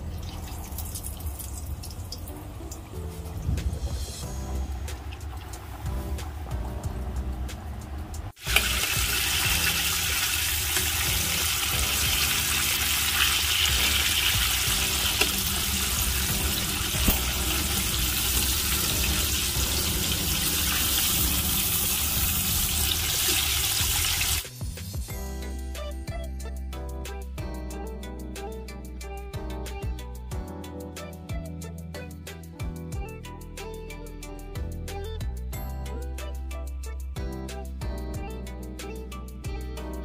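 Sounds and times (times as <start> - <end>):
deep-frying oil sizzle: 0.0 - 7.7, 8.3 - 24.6
soft background music: 0.0 - 40.0.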